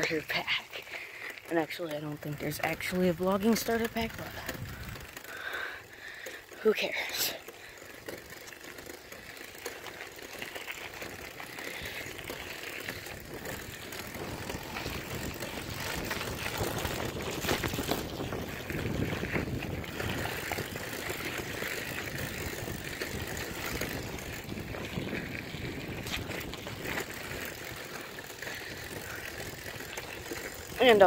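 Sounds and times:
bicycle chain ticking: 0.0s - 31.0s
wind on microphone: 13.3s - 27.3s.

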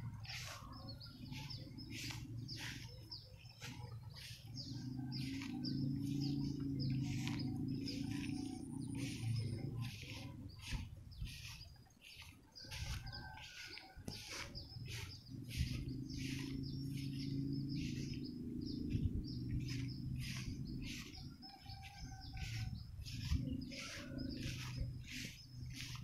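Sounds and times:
low hum: 0.0s - 11.8s, 14.4s - 26.0s.

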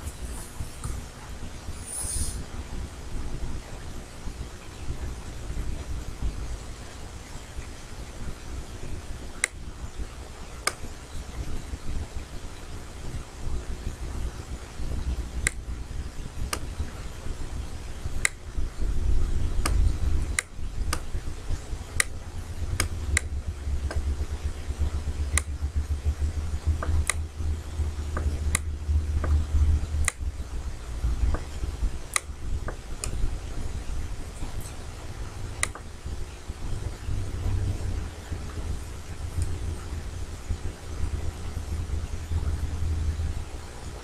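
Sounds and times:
steady low rumble: 0.0s - 44.0s.

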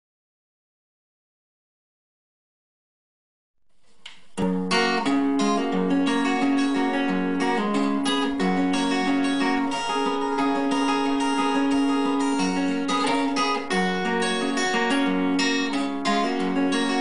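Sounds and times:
acoustic guitar strumming: 4.0s - 17.0s.

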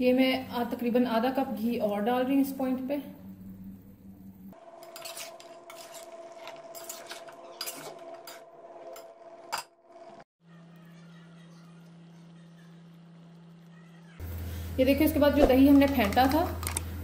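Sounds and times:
metal spatula scraping metal pot: 4.6s - 9.7s.

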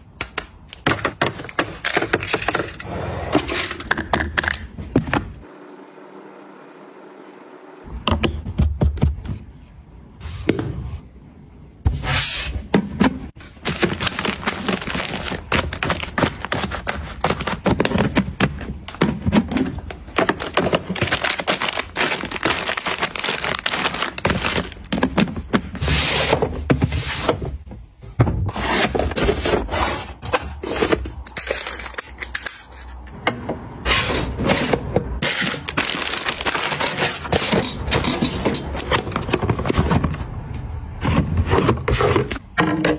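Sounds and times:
taps clicks and scrapes of items: 0.1s - 5.4s, 13.0s - 27.4s, 34.4s - 42.9s
plastic wrappers crinkling: 13.5s - 18.0s, 19.8s - 25.1s, 35.2s - 37.8s.

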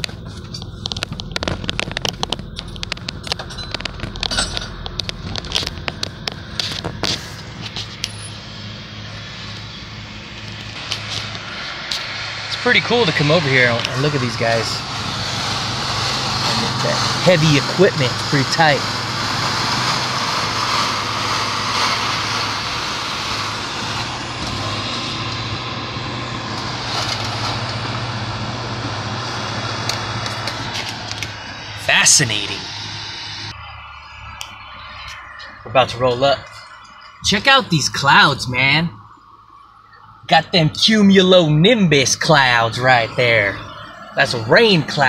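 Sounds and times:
sharp clicks and crackles: 0.0s - 8.4s, 9.4s - 12.3s, 29.2s - 35.6s
constant rushing noise: 0.0s - 45.0s
vehicle engine hum: 0.0s - 45.0s.

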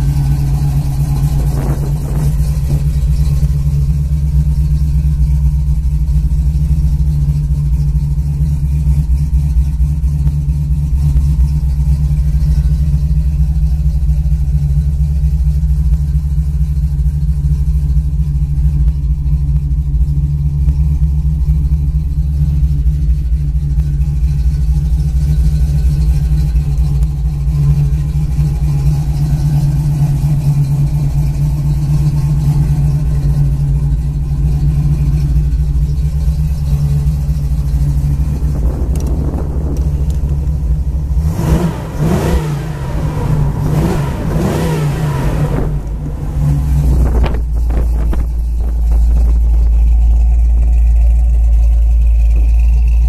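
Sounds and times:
car engine idling and revving: 0.0s - 53.0s.

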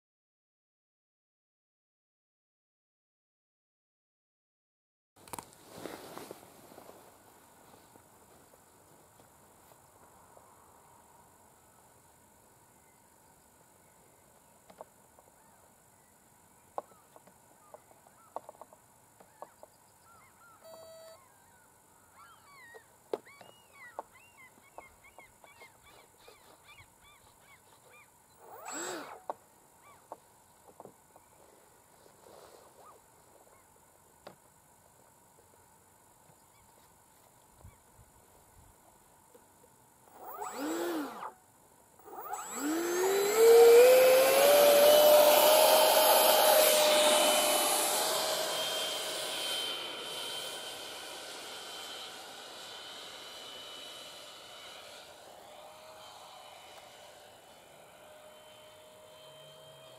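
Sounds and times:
short bird calls: 19.2s - 28.8s
electric ducted fan whooshing: 42.0s - 59.9s.

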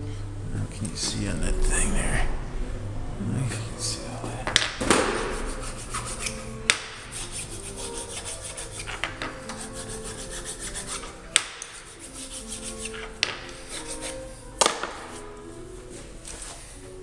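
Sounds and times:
hands rubbing on metal: 5.0s - 14.4s.

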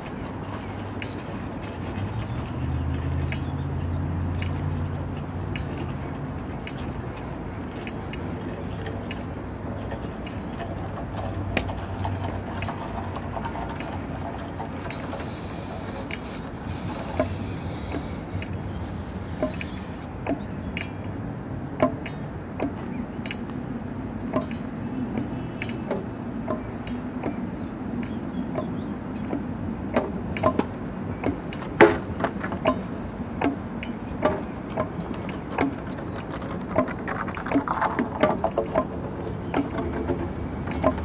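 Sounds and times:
steady low background noise: 0.0s - 41.0s
sharp clinks and taps on objects: 0.9s - 1.4s, 2.0s - 9.6s, 10.2s - 21.1s, 21.8s - 23.6s, 24.3s - 27.4s, 28.0s - 41.0s.

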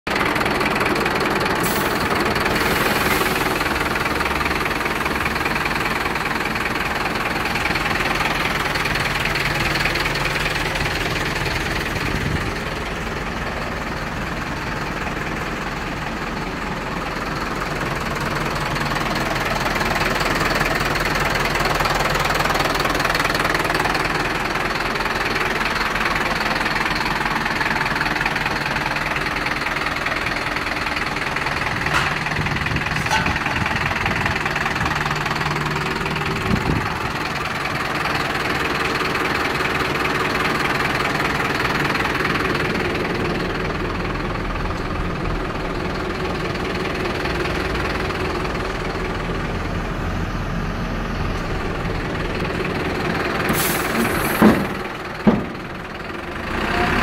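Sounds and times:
diesel engine idling: 0.1s - 57.0s.

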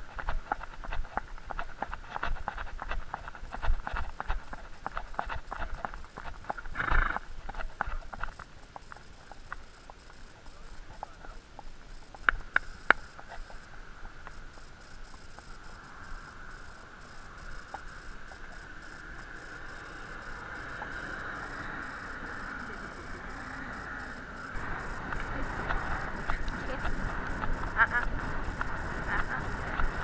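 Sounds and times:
horse hooves clicking: 0.0s - 30.0s
road traffic hiss: 6.4s - 30.0s.

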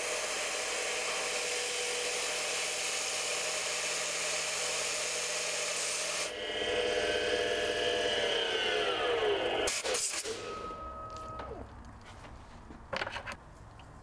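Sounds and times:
lathe motor whine: 6.3s - 11.7s.

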